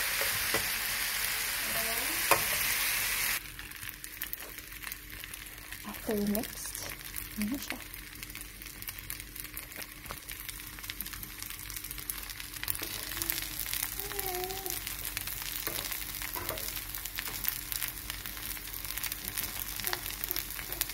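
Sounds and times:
rice sizzling in a frying pan: 0.0 - 20.9
metal spoon stirring in pan: 15.6 - 17.6.

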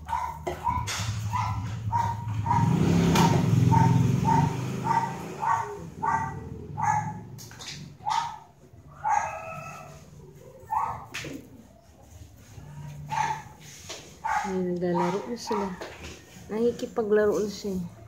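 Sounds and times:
young animal crying: 8.9 - 10.7.

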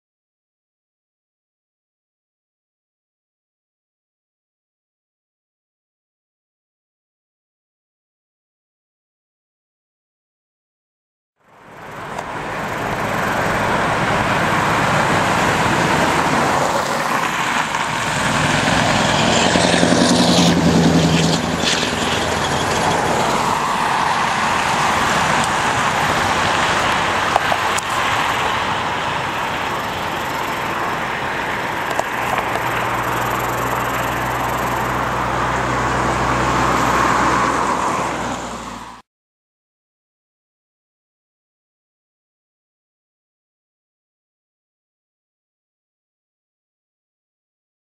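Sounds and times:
cars passing: 11.4 - 39.0
truck passing by: 11.4 - 39.0.

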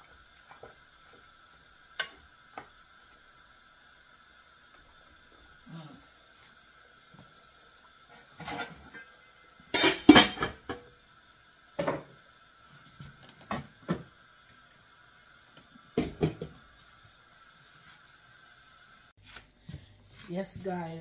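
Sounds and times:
pots and dishes clattering: 8.2 - 10.9, 11.8 - 12.1, 16.0 - 16.5.

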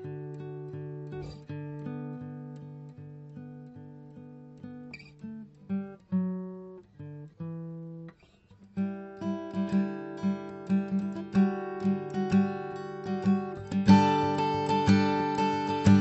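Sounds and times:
plucked string music: 9.3 - 16.0.

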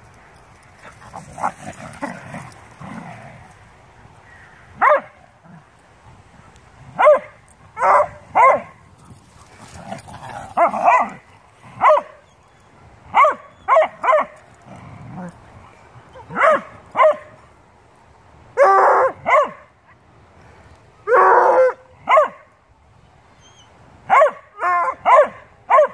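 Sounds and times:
dogs growling: 0.8 - 3.6, 9.0 - 11.8, 14.6 - 16.4.

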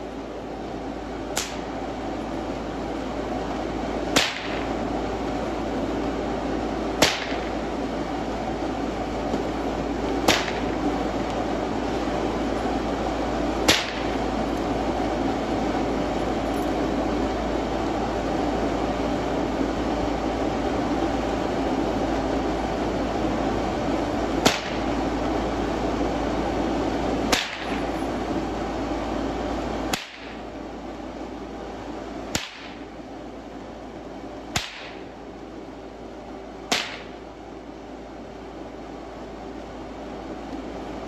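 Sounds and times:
blower fan drone: 0.0 - 41.0
sharp cracks: 1.3 - 1.7, 4.1 - 4.8, 7.0 - 7.6, 10.2 - 10.8, 13.6 - 14.2, 24.4 - 24.9, 27.3 - 27.9, 29.9 - 30.4, 32.3 - 32.9, 34.5 - 35.1, 36.7 - 37.2.

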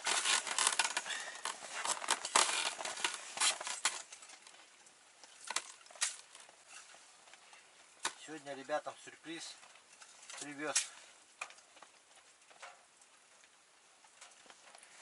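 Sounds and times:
rustling and crackling handling noise: 0.0 - 15.0.

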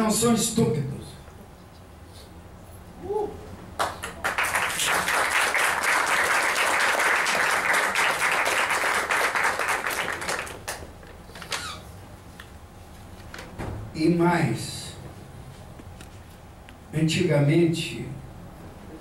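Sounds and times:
audience applauding: 3.8 - 10.9.

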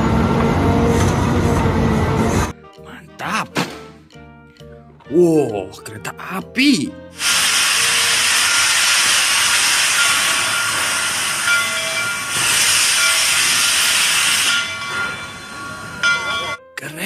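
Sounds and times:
steam locomotive hissing: 7.1 - 16.6.

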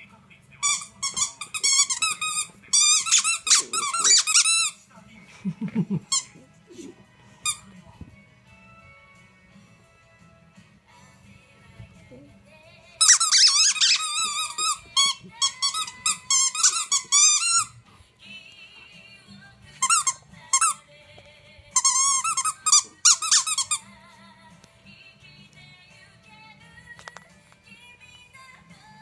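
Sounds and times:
faint background music: 0.0 - 29.0
squeaky dog toy squeaking: 0.6 - 4.8, 6.1 - 6.4, 13.0 - 17.8, 19.8 - 20.8, 21.8 - 23.8.

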